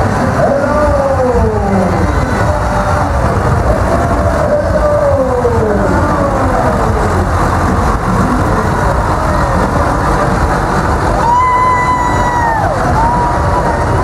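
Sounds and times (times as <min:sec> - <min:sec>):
tractor diesel engine passing: 0:00.0 - 0:14.0.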